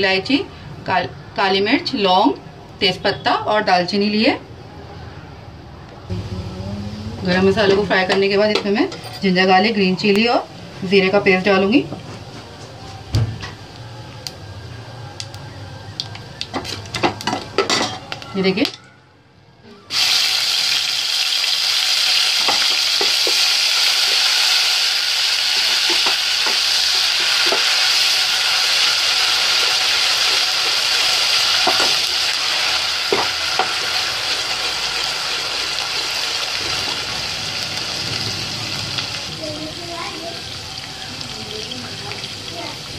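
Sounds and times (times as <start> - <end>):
paste sizzling in hot oil: 19.9 - 42.9.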